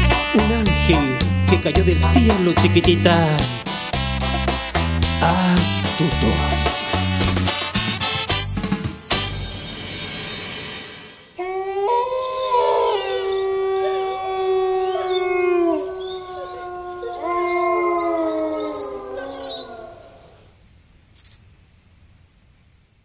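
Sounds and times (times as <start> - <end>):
wild canids howling: 11.4 - 20.5
crickets trilling: 11.4 - 23.0.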